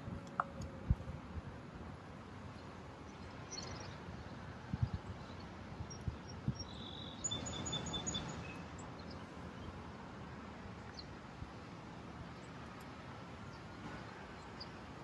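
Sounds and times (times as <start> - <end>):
bird chirping: 6.6 - 9.7.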